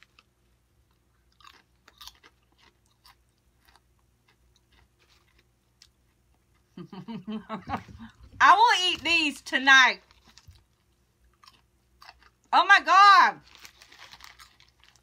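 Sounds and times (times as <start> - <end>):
potato chip crunching: 0.0 - 6.6, 9.9 - 12.5, 13.4 - 15.0.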